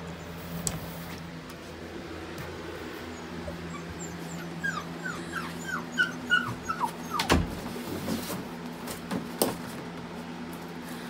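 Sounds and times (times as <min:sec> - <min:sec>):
puppy whimpering: 0:03.0 - 0:07.5.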